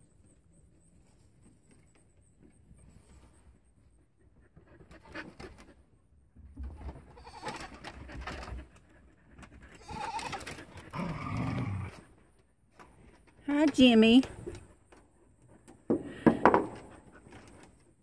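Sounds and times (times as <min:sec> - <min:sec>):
goat bleating: 0:07.2 - 0:07.7, 0:09.8 - 0:10.5.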